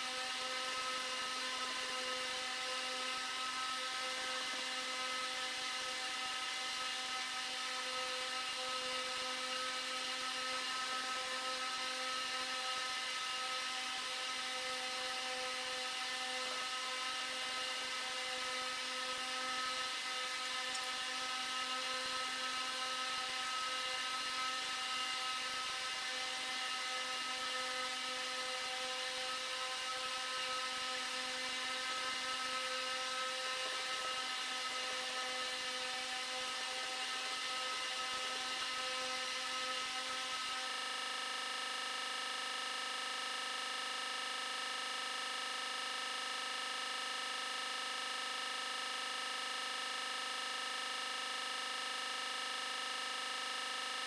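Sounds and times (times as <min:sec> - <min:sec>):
small motor whining: 0:00.0 - 0:40.9.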